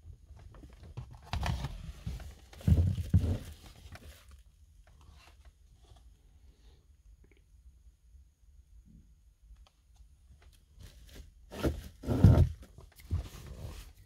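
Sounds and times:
plastic rustling and scraping: 0.4s - 6.2s, 10.8s - 14.0s.

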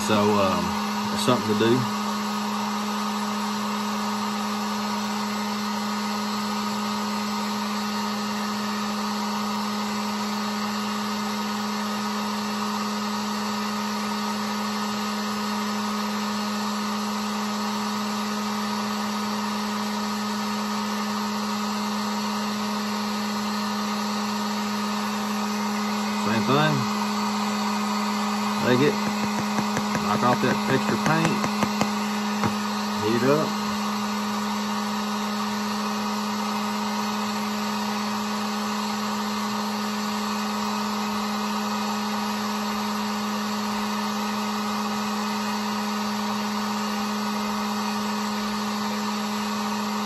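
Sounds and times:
heat gun fan motor hum: 0.0s - 38.4s.

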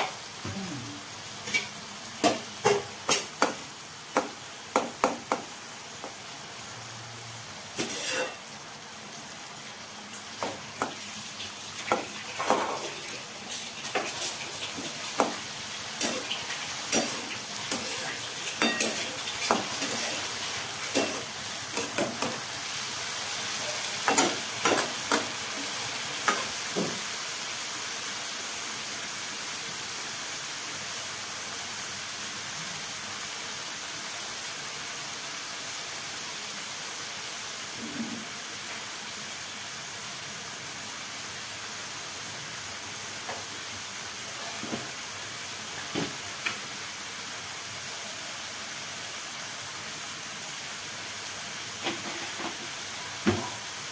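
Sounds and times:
food sizzling: 0.0s - 53.9s
metal spatula scraping a pan: 7.8s - 8.4s.

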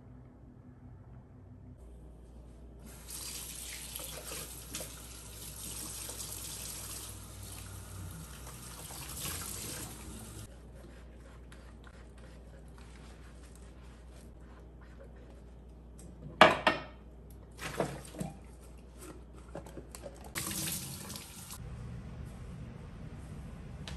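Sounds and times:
faucet running into steel sink: 2.9s - 10.5s.

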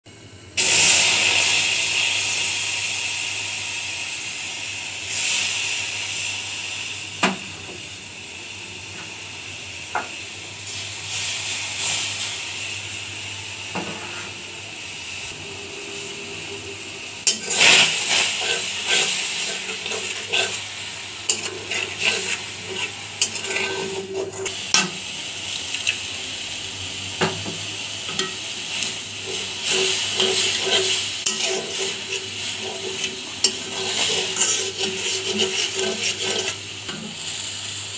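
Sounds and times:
paste sizzling in a hot pan: 0.6s - 37.9s
spoon clinking and scraping pan: 17.3s - 20.6s, 21.2s - 24.9s, 28.1s - 28.4s, 29.2s - 37.1s.

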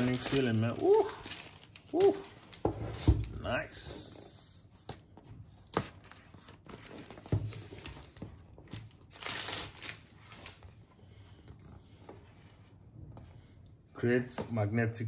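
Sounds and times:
packaging crinkling rustle: 0.0s - 2.6s, 5.8s - 10.8s.

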